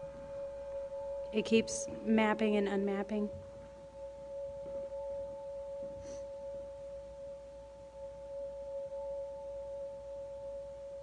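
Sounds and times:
electronic drone of pure tones: 0:00.0 - 0:11.0
faint room noise: 0:00.0 - 0:11.0.

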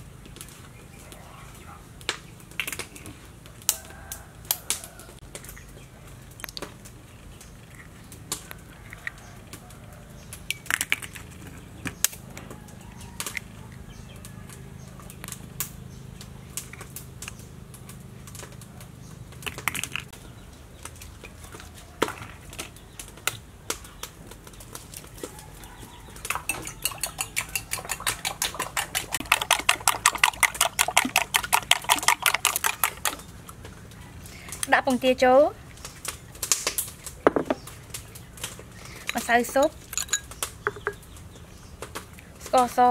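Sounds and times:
spoon beating yolks in a bowl: 0:25.2 - 0:33.3, 0:39.1 - 0:41.0
metal spoon clinking on ceramic bowls: 0:26.2 - 0:31.5, 0:39.1 - 0:41.0.

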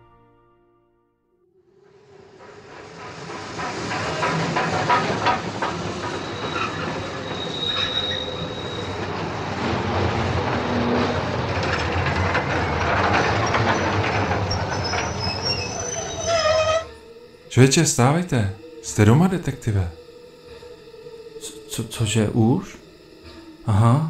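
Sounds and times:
train wheels rumbling on track: 0:01.7 - 0:16.8
high wheel squeal: 0:01.8 - 0:21.6.

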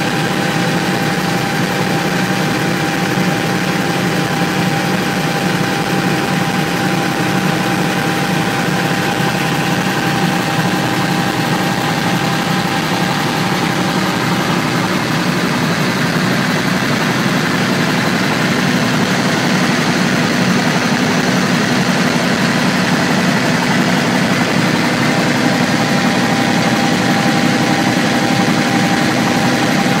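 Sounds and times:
helicopter engine and rotor drone: 0:00.0 - 0:30.0.

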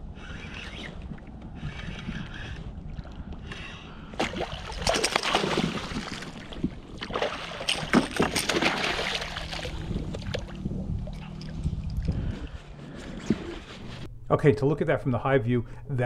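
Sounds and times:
fish splashing at the surface: 0:04.2 - 0:09.8.

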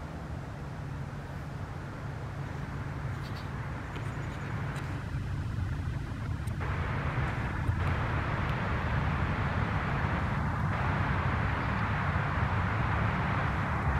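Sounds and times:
towboat diesel engines droning: 0:00.0 - 0:13.9.

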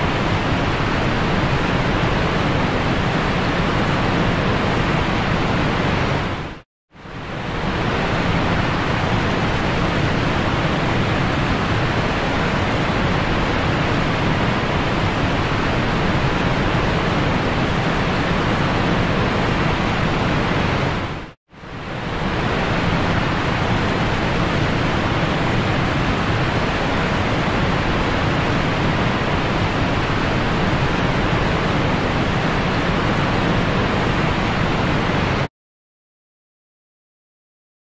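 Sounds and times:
boat wake churning water: 0:00.0 - 0:35.5
wind on microphone: 0:07.2 - 0:35.5.

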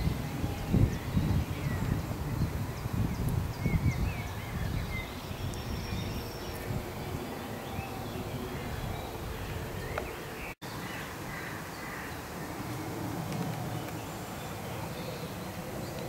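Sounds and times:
small birds chirping: 0:00.0 - 0:12.8.

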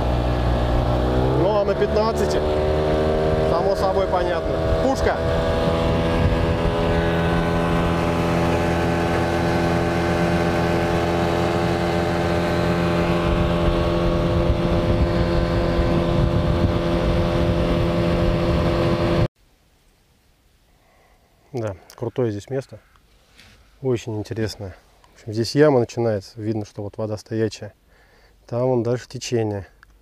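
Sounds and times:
outboard motor running: 0:00.0 - 0:19.3.

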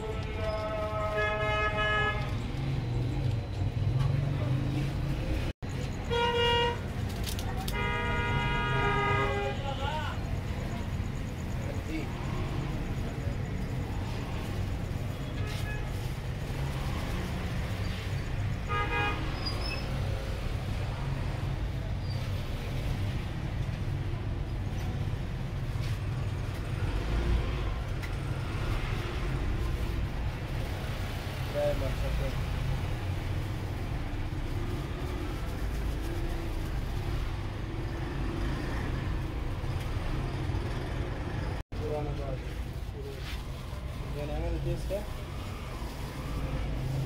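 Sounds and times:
vehicle horn honking: 0:00.0 - 0:02.3, 0:06.1 - 0:06.8, 0:07.7 - 0:09.7, 0:18.7 - 0:19.3
street traffic rumble: 0:00.0 - 0:47.0.

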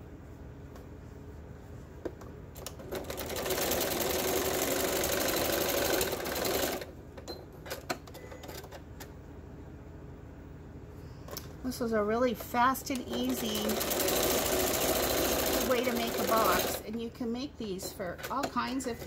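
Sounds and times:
electric sewing machine stitching: 0:02.9 - 0:06.9, 0:13.0 - 0:16.8.

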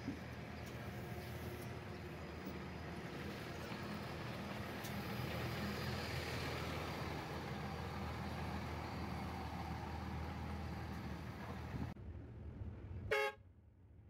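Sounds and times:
bus engine idling: 0:00.0 - 0:12.0.

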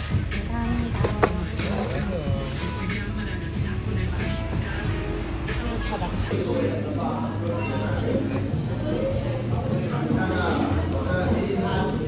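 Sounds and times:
background music: 0:00.0 - 0:12.0
murmur of voices: 0:00.1 - 0:12.0.

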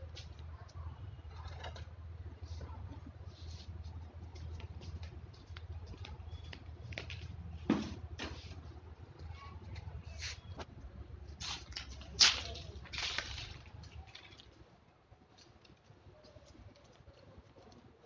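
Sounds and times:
steady low hum: 0:00.0 - 0:18.0
flip-flops on tiled floor: 0:02.4 - 0:10.7, 0:11.3 - 0:14.5.

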